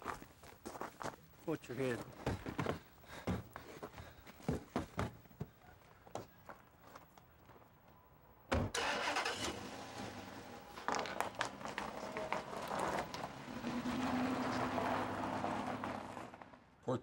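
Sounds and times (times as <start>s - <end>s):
car driving off: 8.7s - 16.7s.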